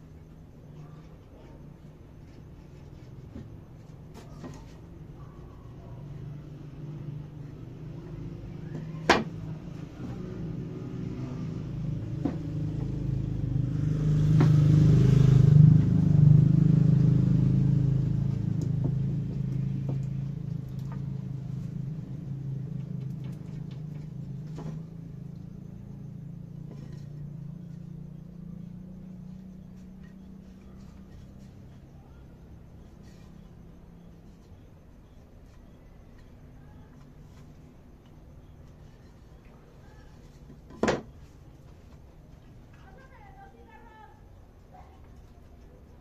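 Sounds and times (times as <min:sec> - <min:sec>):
low engine rumble: 0:00.0 - 0:46.0.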